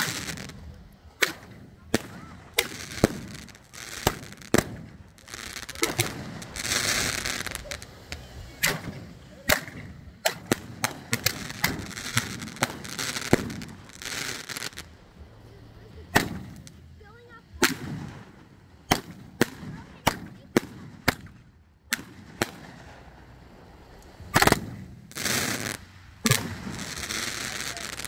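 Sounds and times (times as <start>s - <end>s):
fireworks bangs and pops: 0.0s - 28.0s
fireworks hissing: 0.0s - 28.0s.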